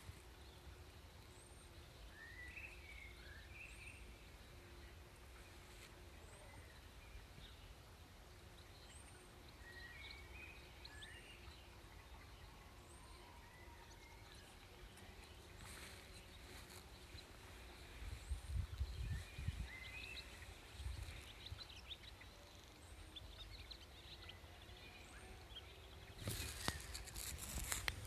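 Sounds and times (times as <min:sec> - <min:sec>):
small birds chirping: 0:00.0 - 0:28.0
wind rumbling on microphone: 0:16.4 - 0:21.8.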